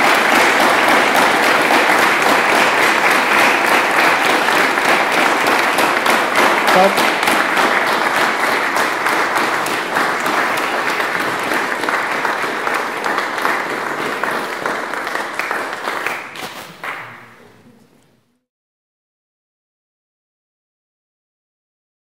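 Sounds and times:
audience applauding: 0.0 - 17.6.

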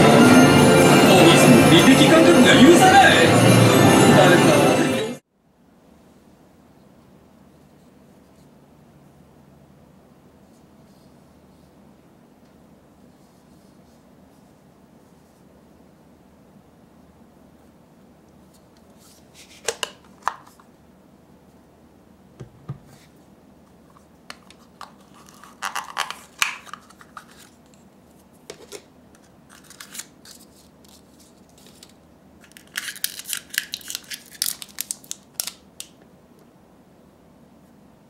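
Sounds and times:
paper and card rustling: 18.5 - 20.7, 22.9 - 35.6
plastic wrapper crinkling: 24.3 - 27.8, 28.6 - 36.0.

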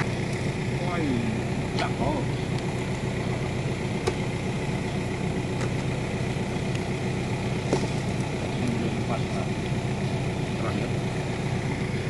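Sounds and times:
diesel engine idling: 0.0 - 12.0
hoe knocking in soil: 7.6 - 8.2.

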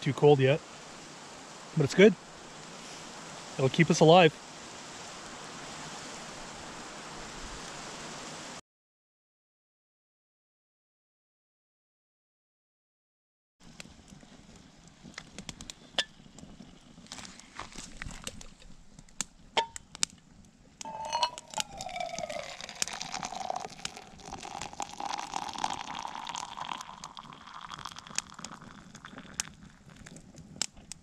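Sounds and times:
water pouring into metal cup: 20.9 - 30.2.

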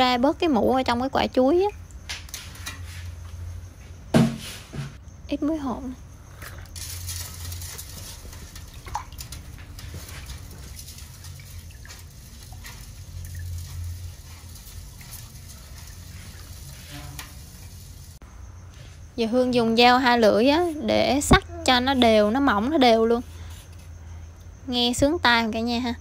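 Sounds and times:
hand stirring water in a pot: 6.3 - 18.2
small water splashes: 6.3 - 18.2.

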